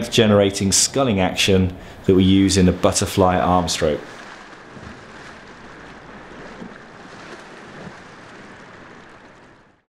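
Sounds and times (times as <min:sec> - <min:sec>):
water splashing from swimming: 0:01.8 - 0:09.8.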